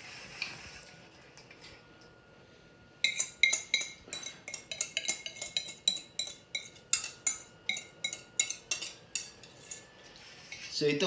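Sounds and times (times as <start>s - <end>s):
utensil clinking against metal bowl: 3.0s - 10.8s.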